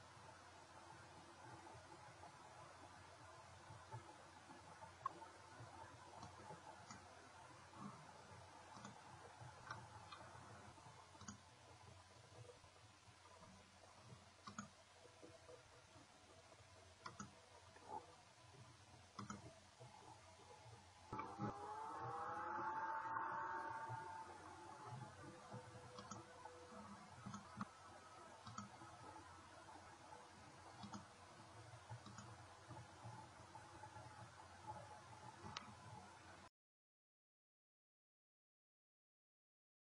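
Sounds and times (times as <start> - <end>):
computer mouse clicks: 5.0 - 7.1, 8.7 - 10.5, 11.1 - 11.5, 14.4 - 14.8, 17.0 - 18.1, 19.1 - 20.0, 23.7 - 27.8, 28.4 - 29.0, 30.5 - 31.1, 31.8 - 33.4, 34.0 - 36.0.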